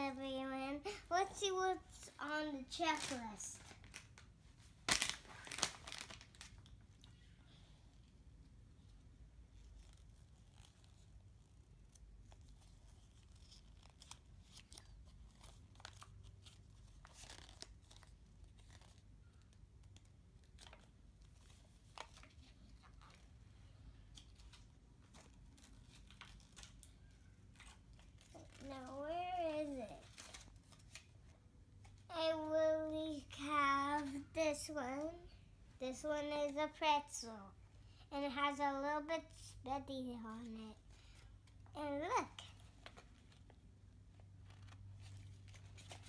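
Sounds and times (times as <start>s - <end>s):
paper rustling and crinkling: 2.7s - 6.8s, 11.9s - 32.1s, 42.4s - 46.0s.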